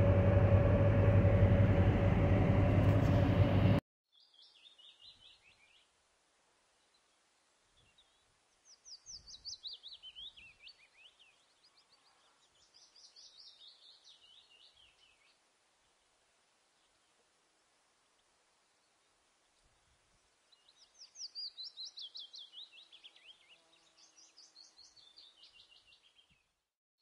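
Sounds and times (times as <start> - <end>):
engine and road noise in cab: 0.0 - 3.8
bird chirping: 4.1 - 5.9, 7.8 - 15.4, 20.5 - 26.5.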